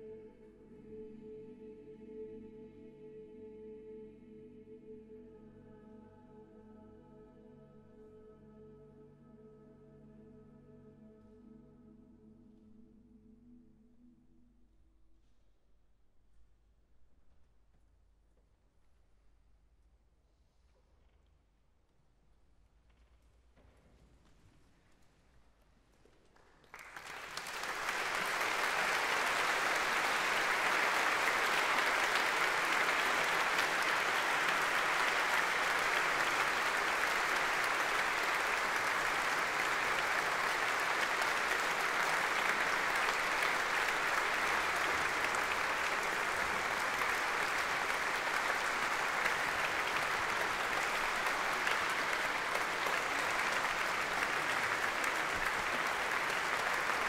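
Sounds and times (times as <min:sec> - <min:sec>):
audience applauding: 0:26.4 - 0:57.0.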